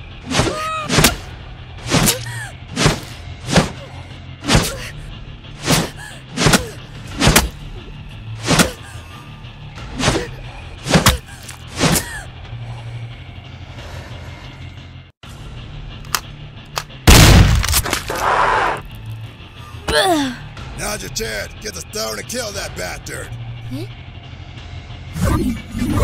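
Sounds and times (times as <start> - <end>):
low music drone: 0.0 - 26.0
sharp hits and impacts: 5.6 - 7.6, 17.1 - 18.2.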